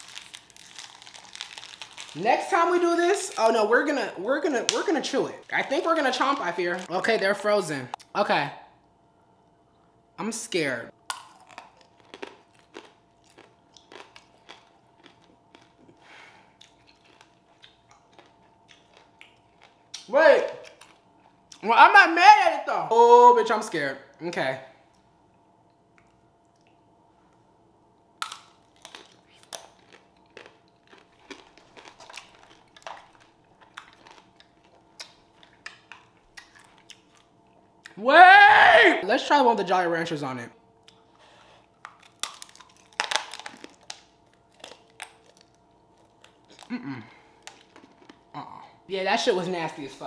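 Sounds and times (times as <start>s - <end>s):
chewing hard candy crunches: 0.0s - 3.6s, 4.7s - 7.2s, 11.1s - 21.4s, 28.2s - 37.9s, 40.9s - 48.5s.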